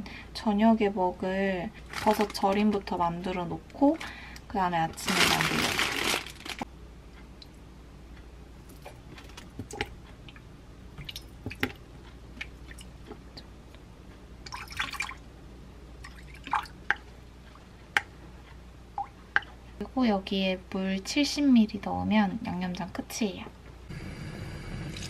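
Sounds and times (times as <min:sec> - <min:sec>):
liquid drips and splashes: 0:11.0 - 0:11.8, 0:14.4 - 0:15.2, 0:16.0 - 0:17.0.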